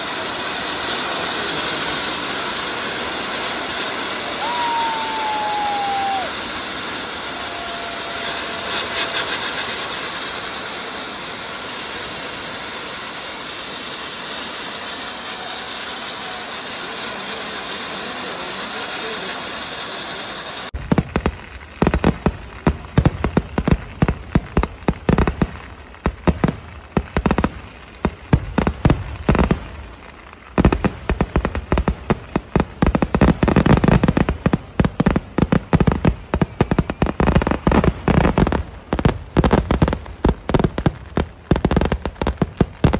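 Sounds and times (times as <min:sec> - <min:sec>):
hiss and crackle of sparks: 0:00.0 - 0:42.9.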